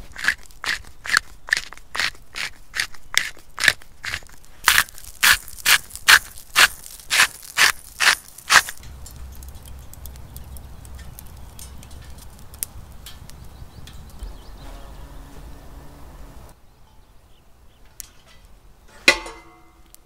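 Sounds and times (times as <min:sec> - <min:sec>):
pepper mill grinding: 0:00.0 - 0:14.2
wood fire crackling: 0:00.0 - 0:16.7, 0:17.5 - 0:20.0
low wind rumble: 0:08.7 - 0:20.0.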